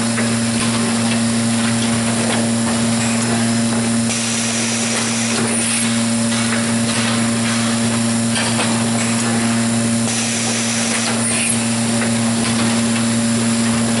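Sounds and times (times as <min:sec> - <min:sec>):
steady machine hum: 0:00.0 - 0:14.0
pneumatic air hiss: 0:04.1 - 0:06.0, 0:10.1 - 0:11.8.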